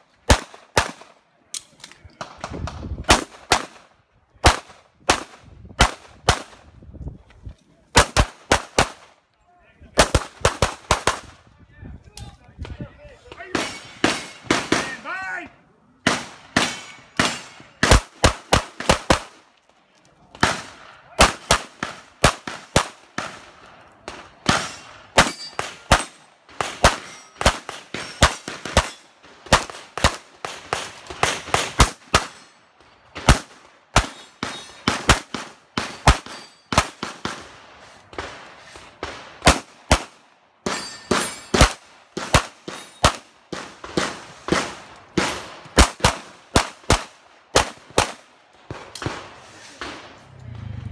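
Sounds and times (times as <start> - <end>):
pistol shots: 2.2 - 3.8, 20.4 - 32.5, 33.2 - 37.5, 39.0 - 50.1.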